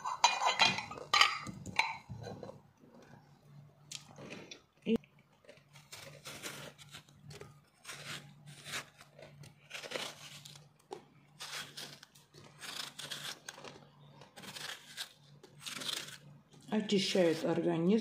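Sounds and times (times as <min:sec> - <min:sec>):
knife slicing a pear: 0:05.7 - 0:16.4.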